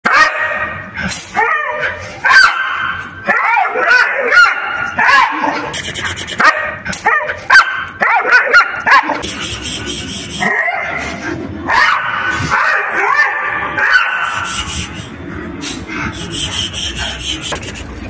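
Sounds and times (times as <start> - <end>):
dog barking: 0.0 - 0.8, 1.4 - 5.7, 6.4 - 9.3, 10.4 - 11.0, 11.7 - 14.6.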